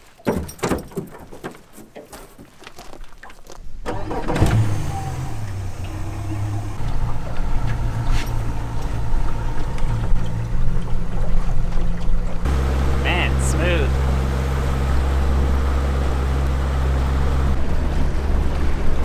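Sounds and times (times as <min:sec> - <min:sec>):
outboard motor low drone: 0:03.9 - 0:19.0.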